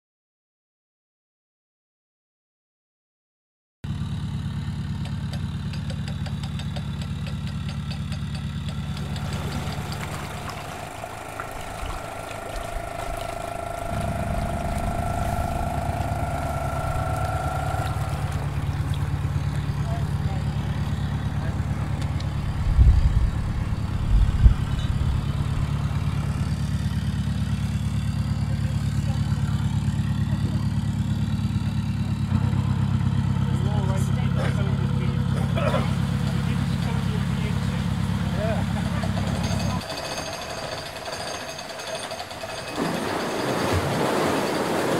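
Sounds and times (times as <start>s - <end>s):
diesel engine idling: 3.9s - 41.1s.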